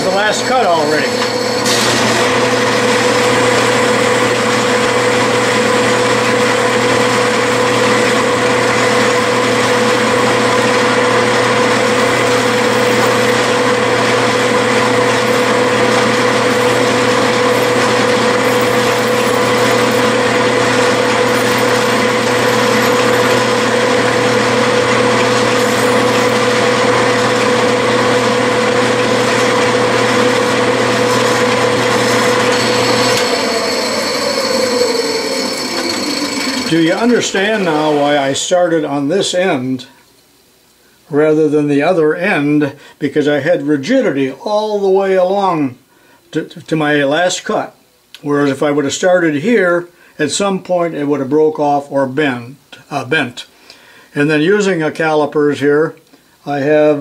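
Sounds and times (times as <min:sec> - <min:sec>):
metal lathe humming and whining: 0:00.0 - 0:38.3.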